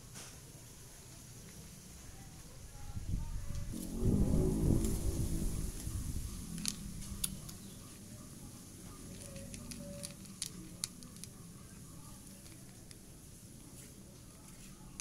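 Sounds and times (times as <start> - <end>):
cat crunching dry kibble: 8.8 - 15.0.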